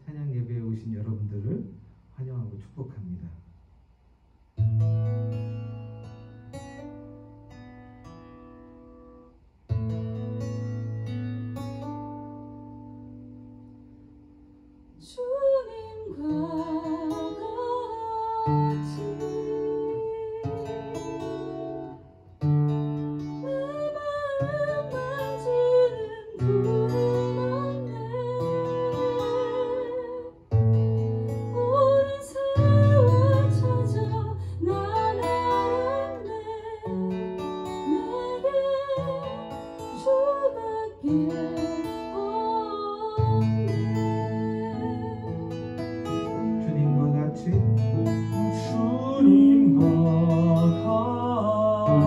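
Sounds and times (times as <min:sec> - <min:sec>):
acoustic guitar: 0:03.5 - 0:52.0
woman singing worship song: 0:15.0 - 0:21.2, 0:23.4 - 0:30.4, 0:31.5 - 0:45.5.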